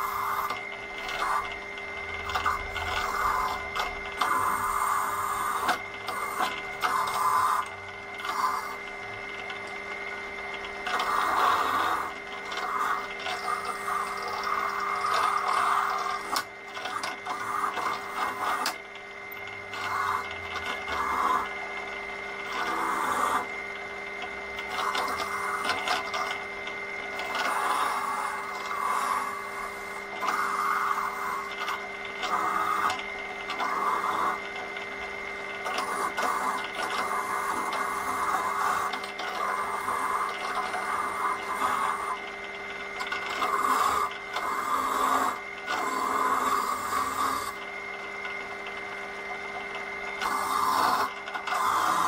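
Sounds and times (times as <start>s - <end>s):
drill motor hum: 0.0s - 52.0s.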